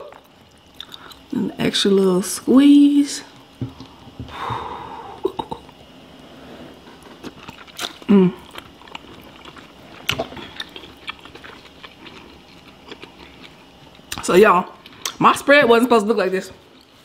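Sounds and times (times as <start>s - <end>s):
person chewing seafood: 0.0s - 1.3s, 6.8s - 14.2s.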